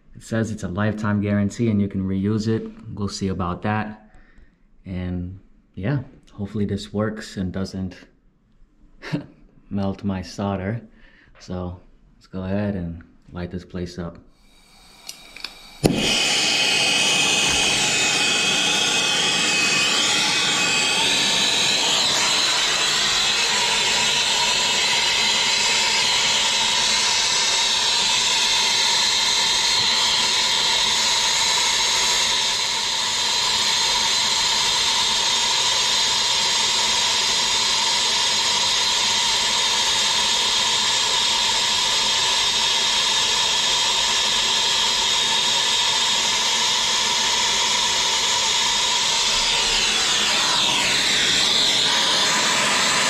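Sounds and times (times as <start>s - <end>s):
brazing torch hissing: 14.4s - 53.0s.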